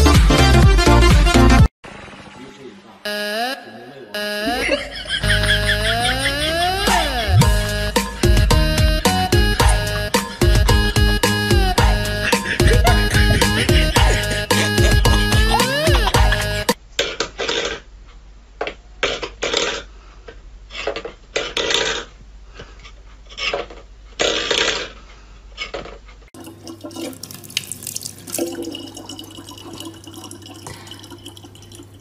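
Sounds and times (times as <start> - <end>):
metal bowls scraping on wooden floor: 22.8 - 25.0
tap running water: 26.4 - 32.0.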